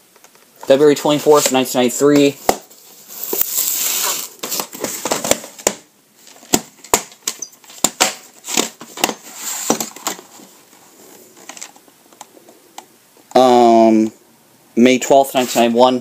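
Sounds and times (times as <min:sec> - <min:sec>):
tape sliding out of sleeve: 0:03.0 - 0:04.7.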